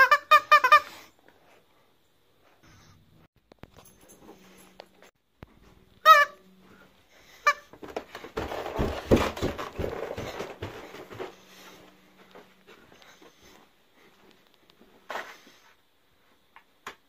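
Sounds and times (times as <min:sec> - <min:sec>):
rustling and handling thumps: 0:07.2 - 0:15.8.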